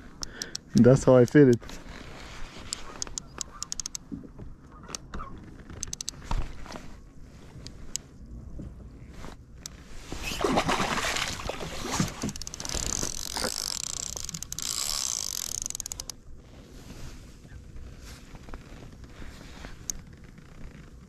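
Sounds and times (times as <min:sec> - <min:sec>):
fishing reel rapid clicking: 0:03.6 - 0:04.0, 0:12.4 - 0:16.2
water splashing: 0:10.2 - 0:14.4.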